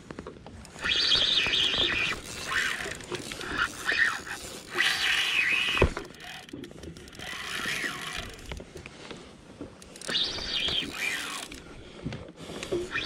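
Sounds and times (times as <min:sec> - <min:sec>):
fishing reel drag buzzing: 0:00.7 - 0:08.6, 0:09.8 - 0:11.8.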